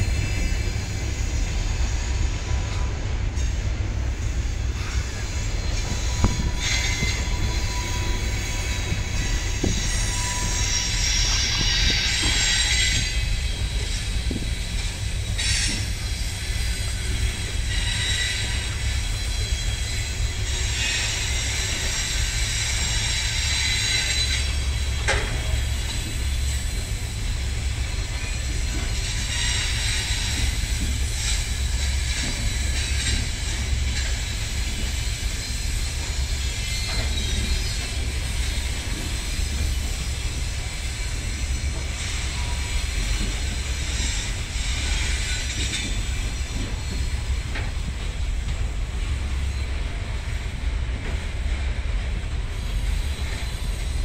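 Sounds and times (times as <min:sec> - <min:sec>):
train wheels rumbling on rail: 0:00.0 - 0:54.0
high-pitched wheel squeal: 0:04.8 - 0:13.6.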